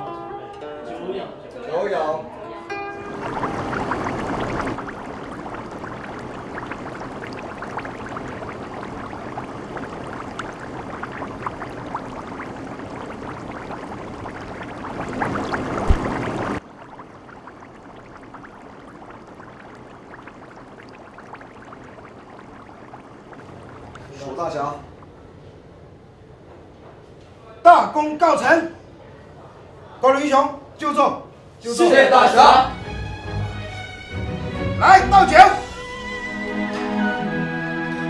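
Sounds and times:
broth boiling and bubbling: 0:03.0 - 0:25.8
crackling pops: 0:03.3 - 0:24.1
low thud: 0:15.8 - 0:16.3.

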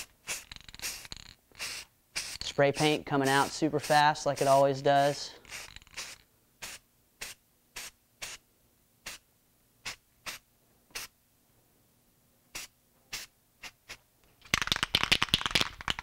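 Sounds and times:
spray can rattling when shaken: 0:00.0 - 0:08.4, 0:12.5 - 0:16.0
spray paint can hissing: 0:00.0 - 0:08.4, 0:09.0 - 0:09.2, 0:09.8 - 0:11.1, 0:12.5 - 0:16.0.

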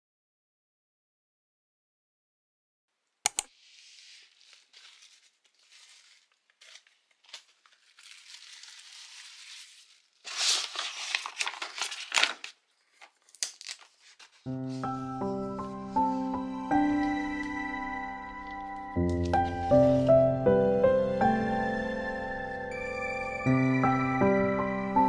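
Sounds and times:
sharp clicks: 0:03.3 - 0:03.5
bubble wrap crinkling: 0:03.5 - 0:16.4.

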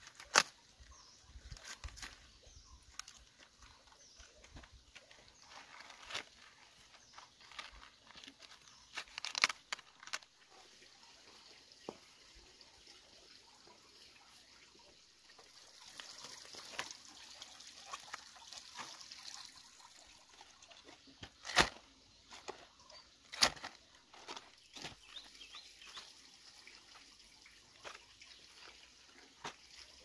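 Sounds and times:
leaves rustling: 0:00.0 - 0:11.1, 0:15.8 - 0:19.4, 0:20.3 - 0:26.1.

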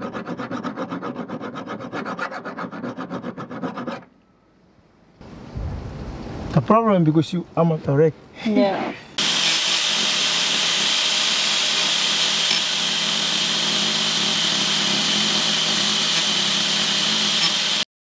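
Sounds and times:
angle grinder grinding metal: 0:09.2 - 0:17.9.

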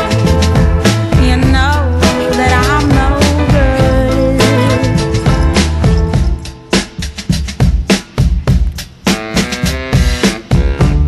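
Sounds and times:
low bass: 0:00.0 - 0:06.6
drums: 0:00.0 - 0:11.0
wavering melody line: 0:01.6 - 0:06.7.

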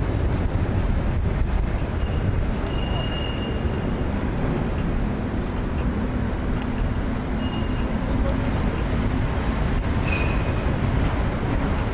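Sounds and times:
electric tram humming: 0:00.0 - 0:11.9
street traffic rumble: 0:00.0 - 0:11.9.

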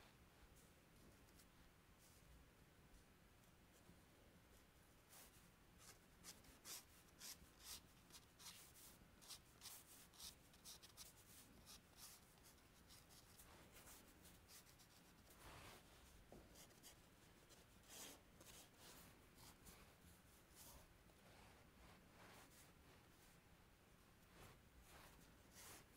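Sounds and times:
chalk scratching on paper: 0:05.1 - 0:15.9, 0:16.6 - 0:22.7, 0:24.4 - 0:25.9.

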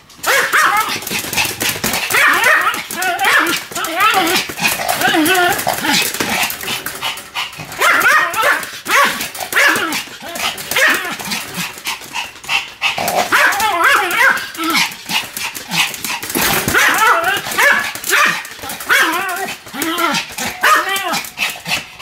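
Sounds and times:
small dog yapping barks: 0:00.2 - 0:01.0, 0:02.0 - 0:04.4, 0:07.8 - 0:10.0, 0:13.2 - 0:14.5, 0:16.7 - 0:19.4, 0:20.5 - 0:21.2.

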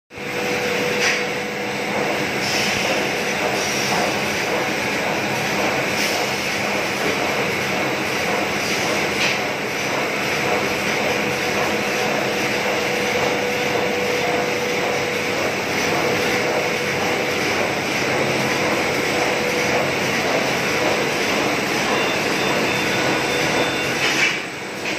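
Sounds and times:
machine motors and rollers running: 0:00.2 - 0:24.9.

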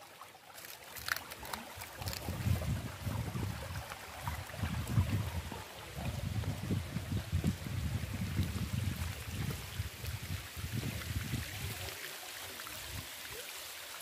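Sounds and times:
water trickling in concrete channel: 0:00.0 - 0:14.0
wind buffeting microphone: 0:01.9 - 0:12.0.

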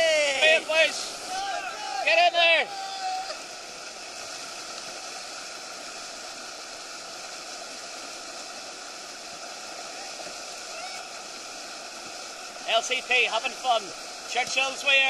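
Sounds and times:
white water rushing below weir: 0:00.0 - 0:15.0.

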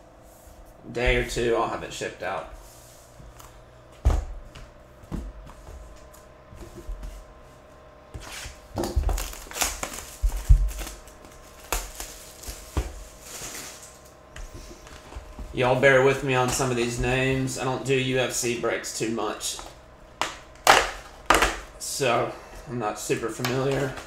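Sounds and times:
cardboard scraping and rustling: 0:02.6 - 0:18.4.

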